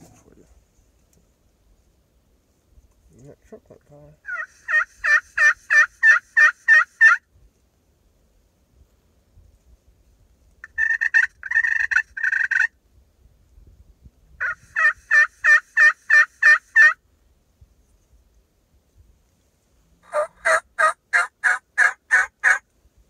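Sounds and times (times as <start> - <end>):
turkey yelping: 4.2 - 7.2, 10.6 - 12.7, 14.4 - 17.0, 20.0 - 22.6.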